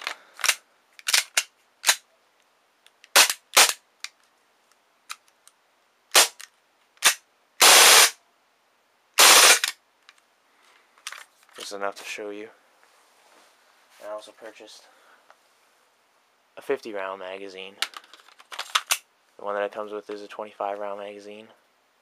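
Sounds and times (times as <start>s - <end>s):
airsoft pistol firing: 7.0s - 8.2s, 9.2s - 9.7s.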